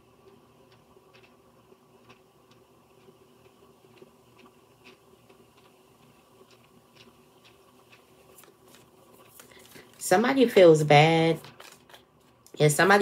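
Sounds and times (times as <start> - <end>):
faint room hum: 0.0 - 13.0
cards clicking: 11.4 - 12.0.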